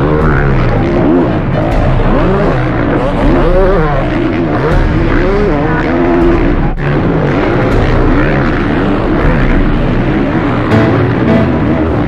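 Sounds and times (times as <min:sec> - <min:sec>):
motocross bike engines revving: 0:00.0 - 0:12.0.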